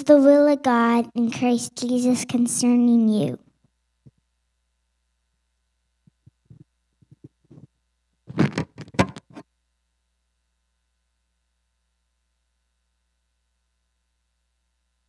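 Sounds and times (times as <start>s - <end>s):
microphone handling knocks: 6.1s - 7.7s, 8.3s - 9.4s
microphone bumping and rubbing: 6.1s - 9.4s.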